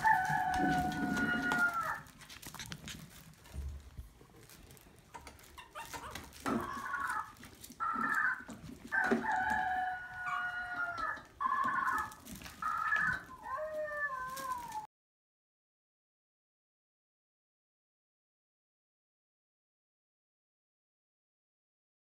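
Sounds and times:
puppies whining and howling: 0:00.0 - 0:03.3, 0:05.4 - 0:14.9.

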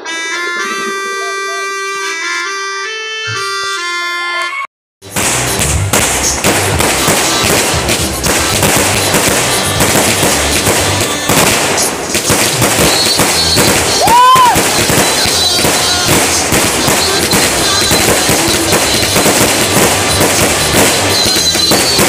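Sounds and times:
firework whistle: 0:00.0 - 0:02.3, 0:03.3 - 0:22.0
fireworks bursting: 0:05.0 - 0:22.0.

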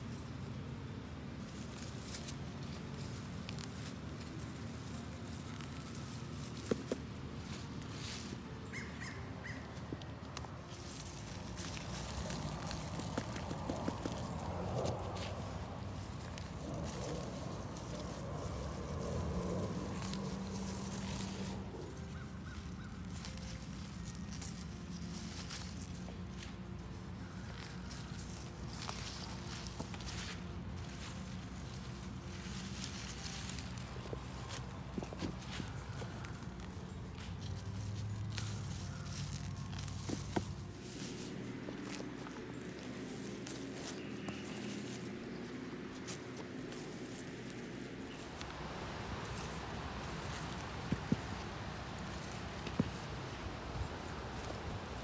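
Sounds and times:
leaves and stems rustling: 0:00.0 - 0:55.0
soil crumbling: 0:01.3 - 0:55.0
bird calling: 0:07.5 - 0:24.4.

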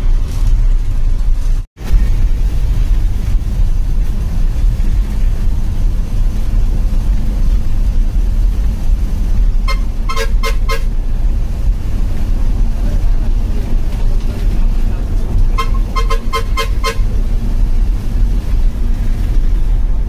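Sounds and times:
bus engine droning: 0:00.0 - 0:20.0
horn tooting: 0:09.6 - 0:11.0, 0:15.5 - 0:17.2.

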